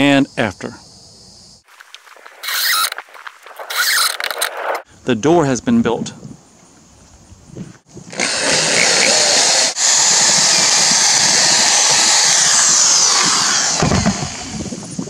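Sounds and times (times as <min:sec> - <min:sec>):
cordless drill boring into wood: 0:02.4 - 0:02.9, 0:03.7 - 0:04.5, 0:08.1 - 0:14.7.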